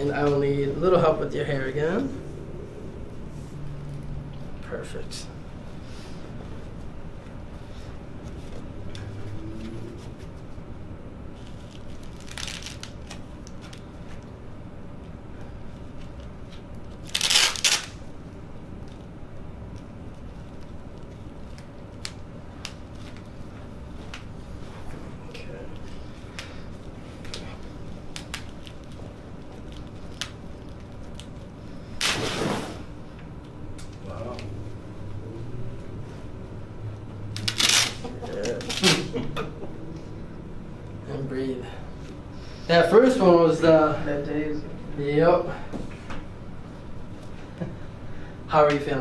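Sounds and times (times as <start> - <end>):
loud crackling rip: 11.4 - 13.8, 16.9 - 18.1, 28.0 - 32.8, 37.3 - 39.1
strap pulling body along table: 32.0 - 32.9.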